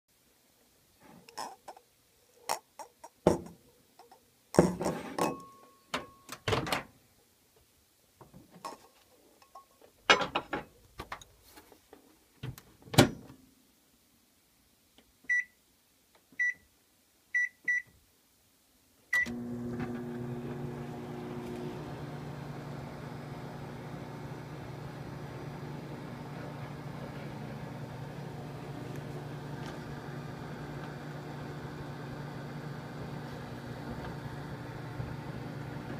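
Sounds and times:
microwave keypad beeps: 15.3 - 15.6, 16.4 - 16.6, 17.4 - 17.9
microwave oven humming: 19.2 - 35.9.

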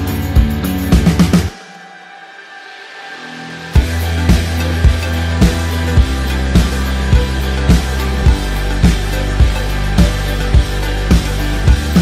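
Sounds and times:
music with heavy bass and drums: 0.0 - 1.8, 3.6 - 12.0.

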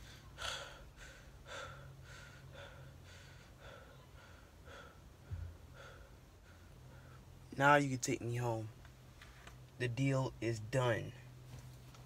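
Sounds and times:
person panting: 0.0 - 7.2.

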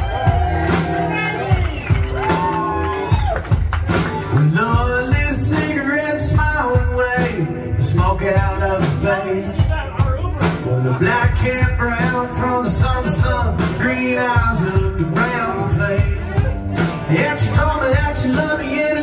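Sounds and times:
drums: 0.0 - 19.0
electric guitars: 0.0 - 19.0
man singing into microphone: 4.4 - 19.0.

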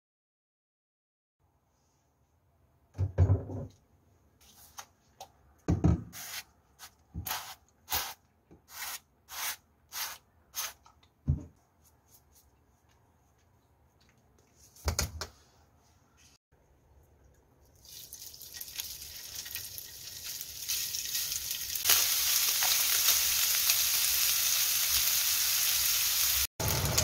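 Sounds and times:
seasoning shaking strokes: 6.2 - 10.8.

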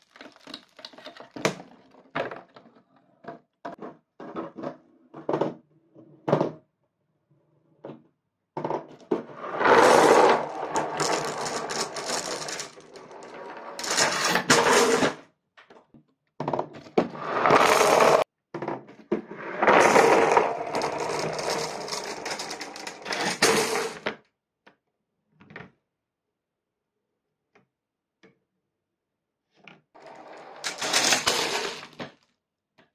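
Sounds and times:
marbles rattling down chutes: 9.6 - 14.5, 17.4 - 18.2, 19.8 - 24.0, 30.0 - 32.1.

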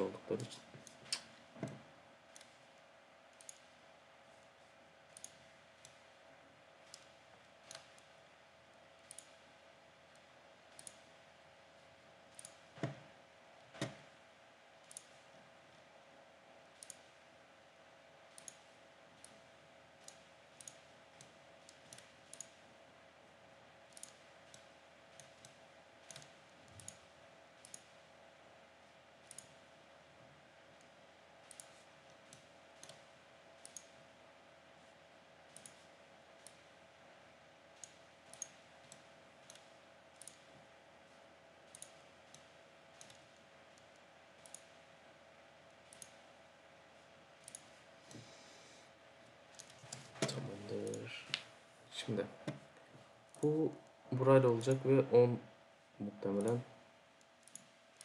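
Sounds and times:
faint steady hum: 0.0 - 58.0
computer mouse clicking: 0.8 - 2.7, 3.3 - 3.8, 5.1 - 6.1, 6.8 - 8.2, 9.0 - 9.5, 10.1 - 11.2, 12.2 - 13.0, 14.8 - 15.3, 16.7 - 17.2, 18.3 - 22.6, 23.9 - 28.1, 29.2 - 29.7, 30.7 - 34.0, 35.4 - 36.8, 37.8 - 40.6, 41.6 - 44.8, 45.7 - 46.2, 47.4 - 48.2, 49.5 - 51.5, 54.5 - 54.9, 56.3 - 56.6, 57.2 - 58.0.

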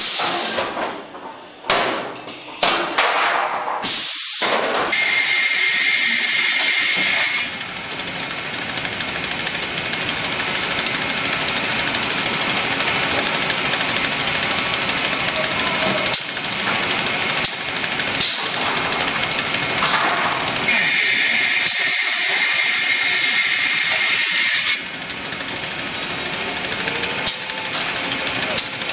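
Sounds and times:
saw line machine noise: 5.0 - 28.9.

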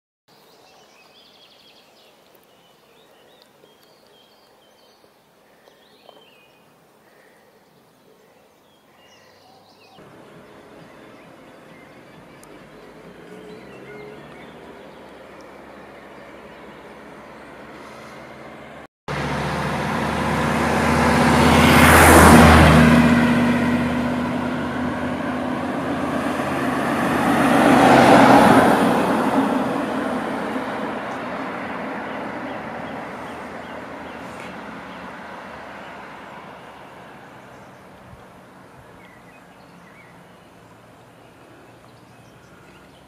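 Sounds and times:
faint outdoor background: 0.3 - 43.0
cars passing by: 10.0 - 43.0.

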